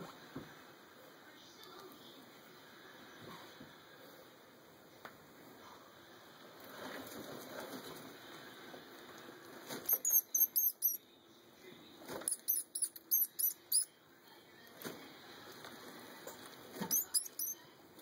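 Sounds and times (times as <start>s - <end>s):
mouse squeaking: 9.9s - 11.0s, 12.2s - 13.9s, 16.8s - 17.6s.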